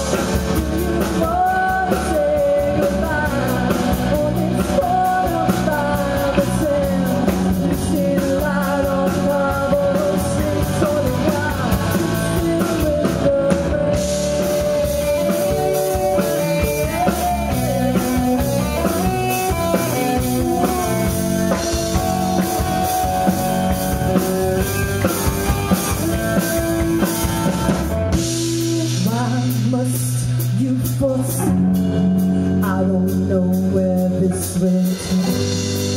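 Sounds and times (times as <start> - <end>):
rock band playing: 0.0 - 35.9
woman singing into microphone: 0.6 - 16.0.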